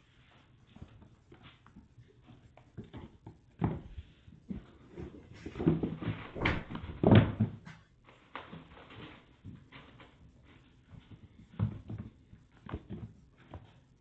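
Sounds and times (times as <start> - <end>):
kitten paws tapping on wooden floor: 0.3 - 14.0.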